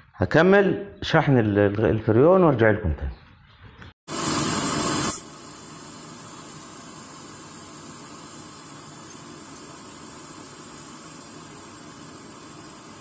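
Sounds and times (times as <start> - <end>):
brazing torch flame hissing: 4.1 - 13.0.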